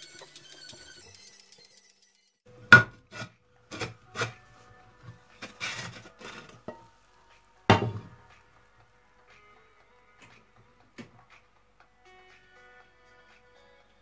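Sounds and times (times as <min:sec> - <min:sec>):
scraping rustle: 0:05.3 - 0:06.8
cookware knocks and clinks: 0:07.7 - 0:08.1.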